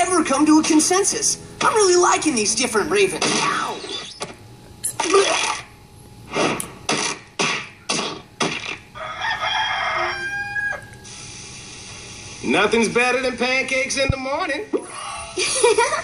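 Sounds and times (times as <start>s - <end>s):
sharp hit sound effects: 6.3s - 8.8s
cartoon rooster crowing: 9.0s - 11.0s.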